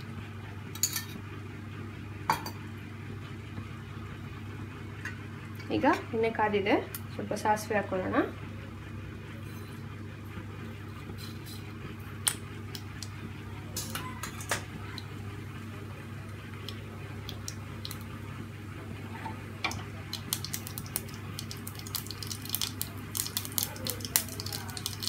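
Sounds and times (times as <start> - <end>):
steady low hum: 0.0 - 25.0
seeds popping in hot oil: 16.5 - 18.2, 19.6 - 25.0.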